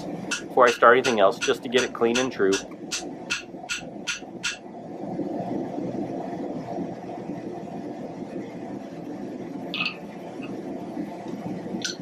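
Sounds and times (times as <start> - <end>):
forge burner roaring: 0.0 - 12.0.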